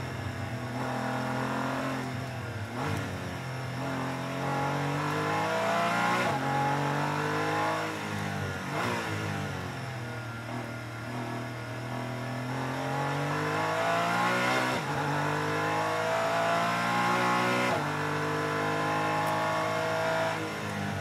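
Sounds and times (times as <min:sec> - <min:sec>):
race car engine accelerating: 0:03.8 - 0:09.5, 0:12.0 - 0:20.8.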